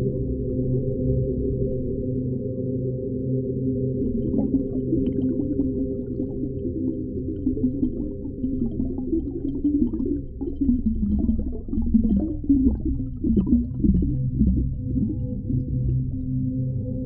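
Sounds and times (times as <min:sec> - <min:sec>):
deep underwater rumble: 0:00.0 - 0:17.0
wavering gurgling sounds: 0:03.9 - 0:16.9.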